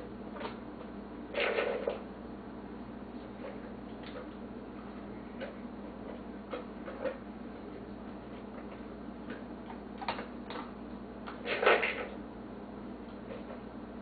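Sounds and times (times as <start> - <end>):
dog eating clicks: 8.6 - 12.2.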